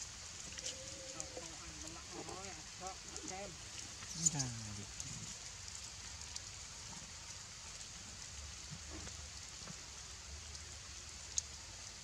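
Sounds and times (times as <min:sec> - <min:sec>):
outdoor background hiss: 0:00.0 - 0:12.0
faint ticks and taps: 0:08.6 - 0:09.8.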